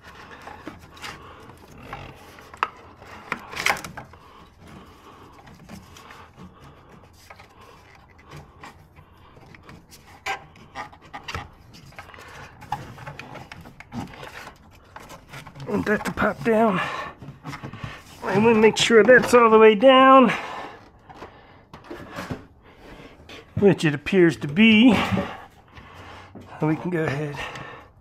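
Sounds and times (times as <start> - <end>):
hands rubbing rubber hose: 0.0 - 21.2.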